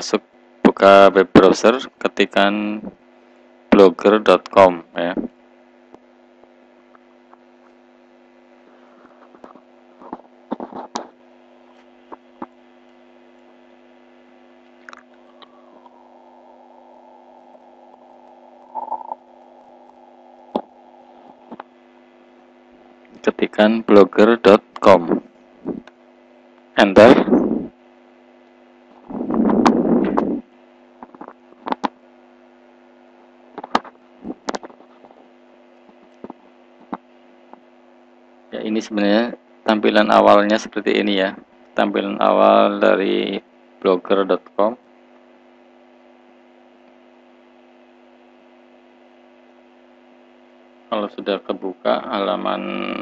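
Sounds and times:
electrical hum and hiss: 0.0s - 53.0s
rustling or mouth noises: 14.8s - 21.8s
loud rough noise: 29.0s - 30.4s.

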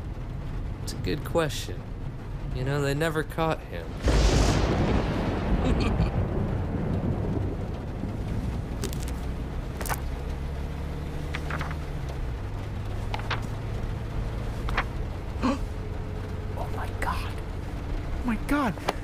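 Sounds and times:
car driving rumble inside cabin: 5.3s - 19.0s
light ticks and rustles: 6.9s - 19.0s.

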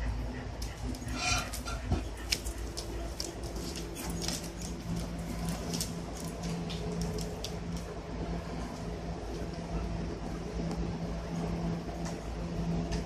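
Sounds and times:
low hum: 0.0s - 13.0s
puppies scuffling: 0.2s - 9.8s.

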